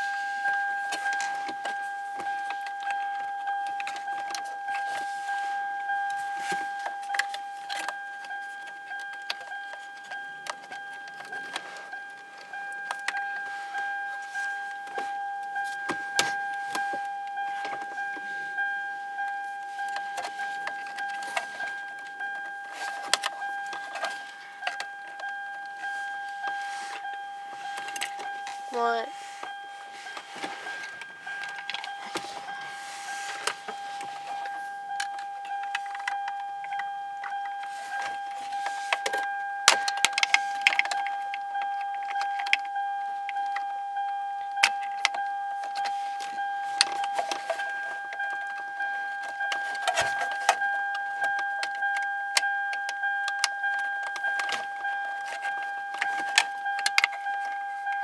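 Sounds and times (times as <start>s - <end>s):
steady high-pitched tone: 0.0s - 58.0s
plastic trim clicking and rattling: 44.6s - 58.0s.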